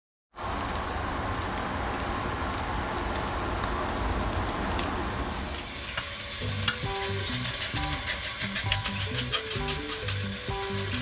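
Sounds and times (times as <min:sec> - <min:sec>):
fish sizzling on a grill: 0:05.1 - 0:11.0.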